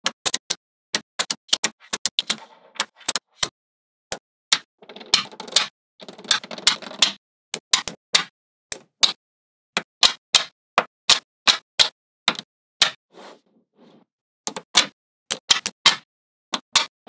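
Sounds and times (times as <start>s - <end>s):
magnetic balls clicking together: 4.1s - 9.2s.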